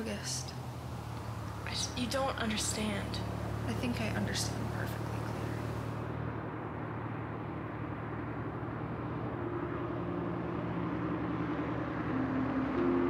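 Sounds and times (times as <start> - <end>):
ambient music notes: 9.4 - 13.0.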